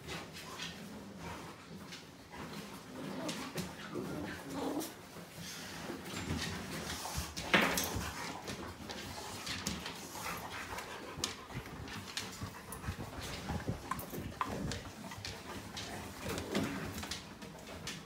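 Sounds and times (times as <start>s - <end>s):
paws scuffling on wooden floor: 0.0s - 18.0s
puppy panting: 6.7s - 18.0s.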